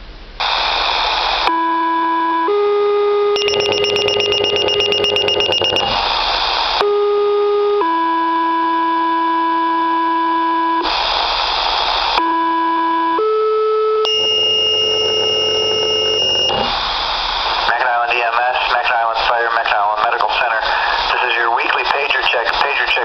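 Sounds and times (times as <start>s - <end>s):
pager alert beeping: 3.4s - 6.0s
two-tone paging tones over radio: 3.4s - 6.0s
radio static bursts: 3.4s - 6.8s, 14.5s - 23.0s.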